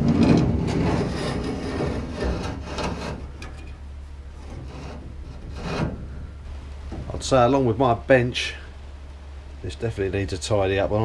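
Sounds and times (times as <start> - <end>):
metal knocks: 0.0 - 3.8, 4.4 - 6.1
metal scraping and rubbing: 0.0 - 6.3.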